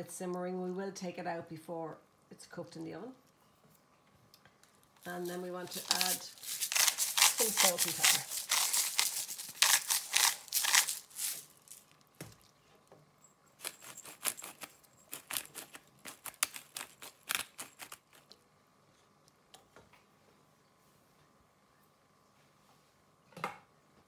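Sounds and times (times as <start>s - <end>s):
spice grinder clicking: 13.6s - 18.3s.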